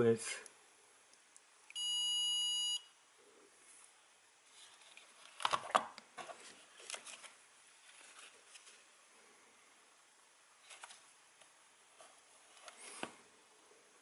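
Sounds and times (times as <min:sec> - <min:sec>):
high electronic beep: 0:01.8 - 0:02.8.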